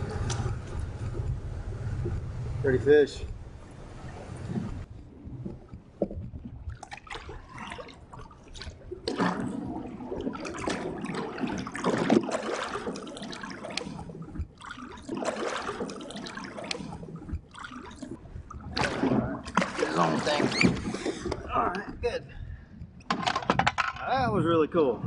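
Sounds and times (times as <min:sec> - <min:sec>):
water splashing and sloshing: 0:00.0 - 0:25.0
fish splashing: 0:05.2 - 0:21.5.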